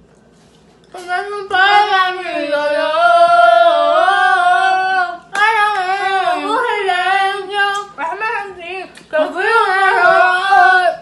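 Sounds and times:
woman singing: 0:00.9 - 0:11.0.

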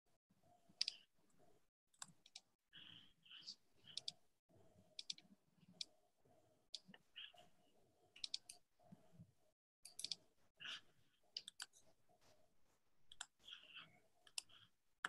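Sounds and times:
computer mouse clicks: 0:00.7 - 0:01.1, 0:01.9 - 0:02.5, 0:03.3 - 0:04.2, 0:05.0 - 0:06.0, 0:08.2 - 0:08.6, 0:09.8 - 0:10.8, 0:11.4 - 0:11.9, 0:13.1 - 0:14.7.

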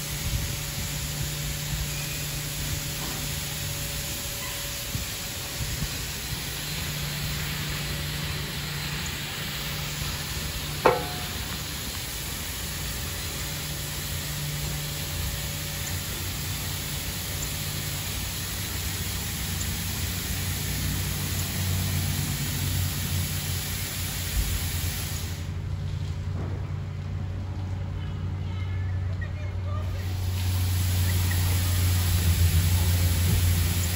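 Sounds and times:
low machine hum: 0:00.0 - 0:24.6, 0:25.3 - 0:33.9
high-pressure water spray hissing: 0:00.0 - 0:25.6, 0:29.8 - 0:33.9
sharp clunk: 0:10.9 - 0:11.5.

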